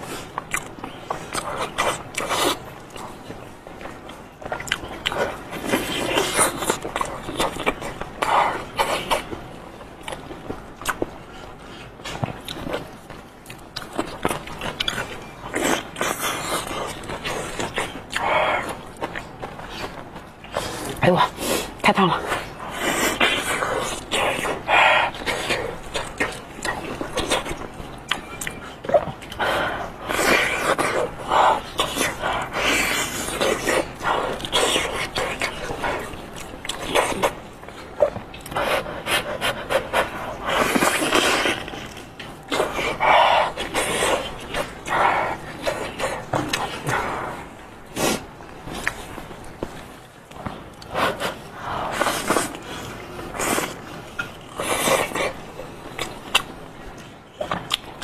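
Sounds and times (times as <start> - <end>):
wet mouth sounds: 0.0 - 3.1
wet chewing: 0.0 - 58.0
mouth smacks and clicks: 0.4 - 3.1, 22.8 - 47.2, 48.8 - 58.0.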